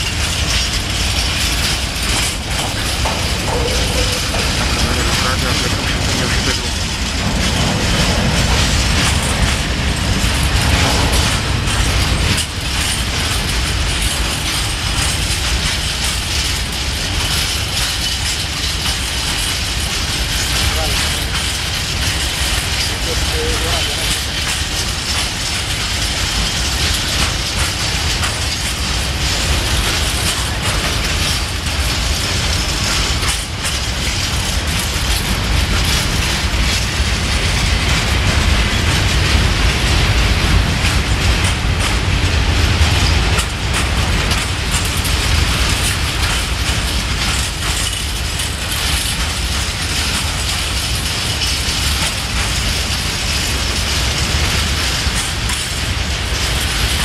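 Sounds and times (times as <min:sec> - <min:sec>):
freight train rumbling past: 0:00.0 - 0:57.0
wheels clattering over rail joints: 0:00.0 - 0:57.0.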